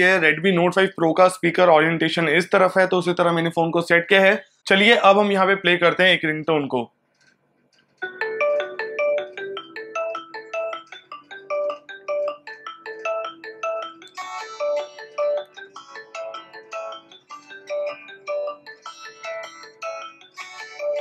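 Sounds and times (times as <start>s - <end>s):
phone ringtone melody: 8.0s - 21.0s.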